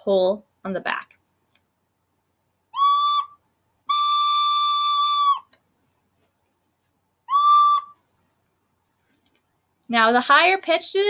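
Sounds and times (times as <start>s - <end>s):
recorder playing high note: 2.8s - 5.4s.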